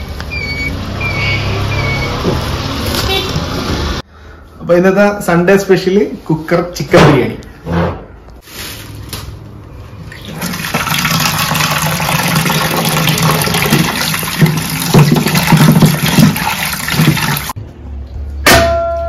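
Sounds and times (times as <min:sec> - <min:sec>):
hands rinsing meat: 0:10.3 - 0:17.5.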